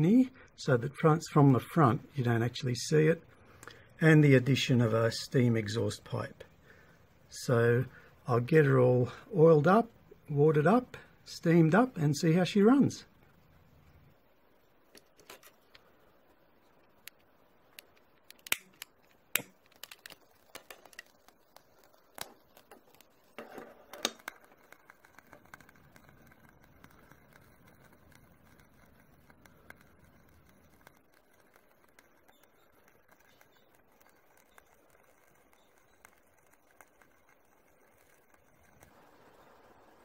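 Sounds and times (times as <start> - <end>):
faint steady hiss: 0.0 - 40.0
brass burner being handled: 16.9 - 39.1
utility lighter clicking: 17.8 - 20.2.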